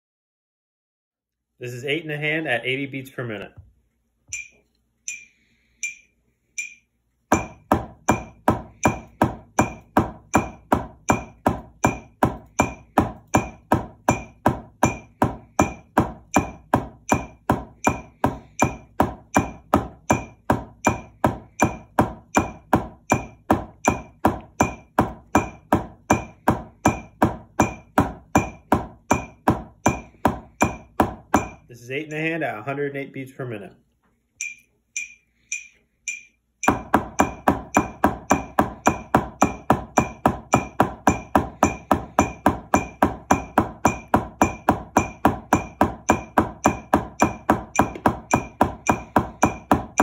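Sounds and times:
metronome clicking: 4.3s - 6.9s, 34.4s - 36.8s
drumsticks striking practice pad: 6.6s - 31.7s, 34.4s - 50.0s.

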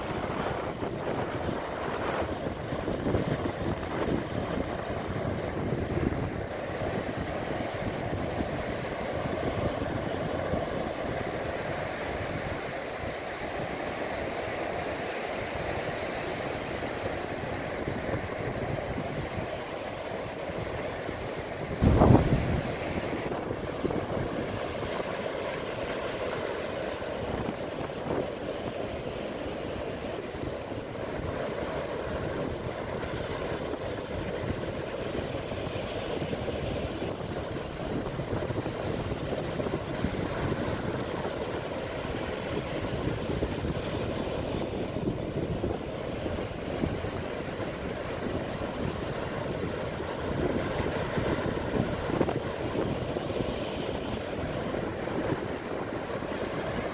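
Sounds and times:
sea waves washing up a beach: 0.0s - 56.9s
wind on microphone: 0.0s - 56.9s.

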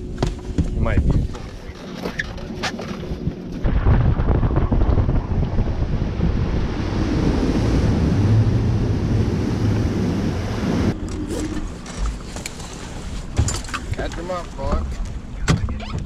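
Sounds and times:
wind rushing over microphone: 0.0s - 1.8s, 2.4s - 12.2s
low boat engine drone: 0.0s - 16.0s.

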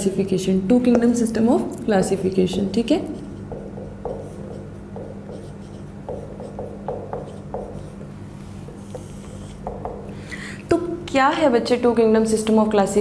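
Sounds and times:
marker writing on whiteboard: 2.0s - 10.1s.

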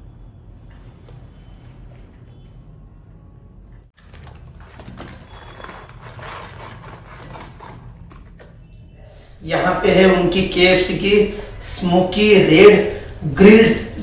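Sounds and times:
packaging rustling: 4.0s - 8.4s.

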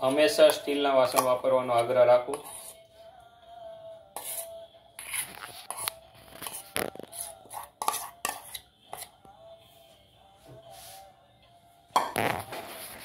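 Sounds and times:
spoon scraping metal pan: 0.1s - 2.9s, 4.1s - 9.2s.

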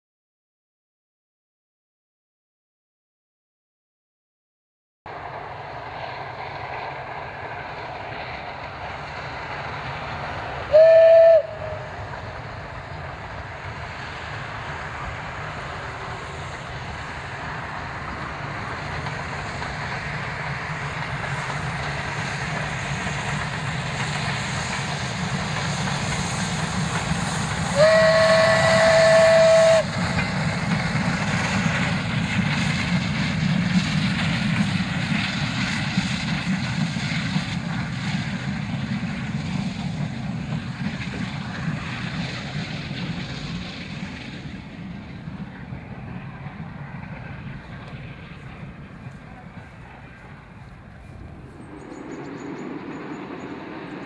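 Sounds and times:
steam train rumble: 5.1s - 54.0s
steam whistle blasts: 10.7s - 12.0s, 27.6s - 30.2s.

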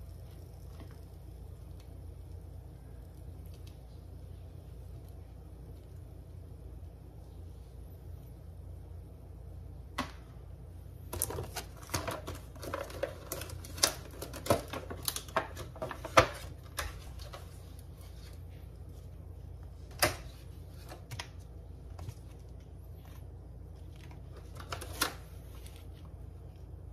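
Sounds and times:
steady low hum: 0.0s - 26.9s
plastic container crackling: 11.1s - 18.4s.

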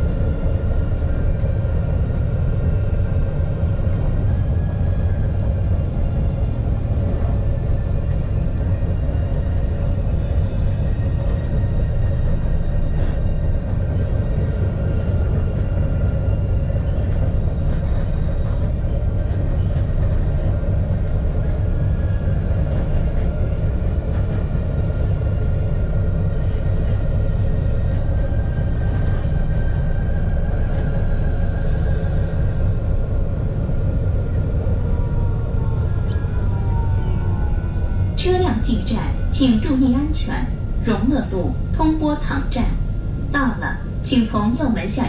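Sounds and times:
tram wheels rumbling on rails: 0.0s - 45.0s
faint whining tones: 4.2s - 44.4s.

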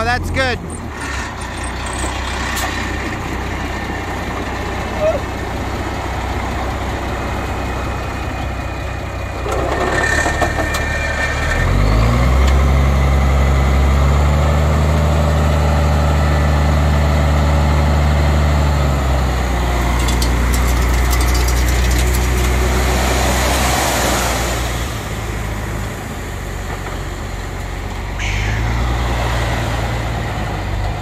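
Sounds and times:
truck engine idling and revving: 0.0s - 31.0s
gravel sliding out clattering: 19.7s - 24.6s.

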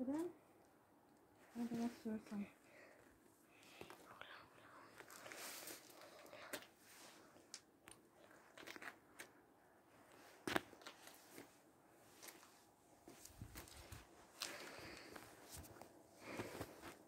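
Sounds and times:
faint clicks and crunches: 7.4s - 9.4s, 10.1s - 11.6s.

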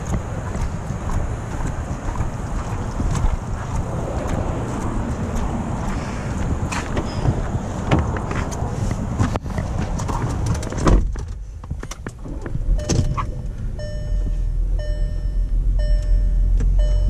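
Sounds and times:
car engine idling: 0.0s - 17.0s
car door shutting: 6.8s - 8.6s, 10.0s - 13.6s
car door clicking and rattling: 6.8s - 13.6s
car warning chime: 12.8s - 17.0s.

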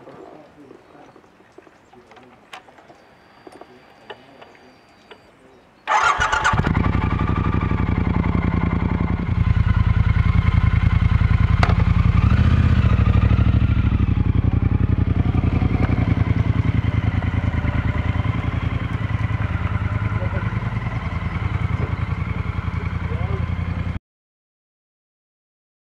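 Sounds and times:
motorcycle engine starting and running: 5.9s - 24.0s.

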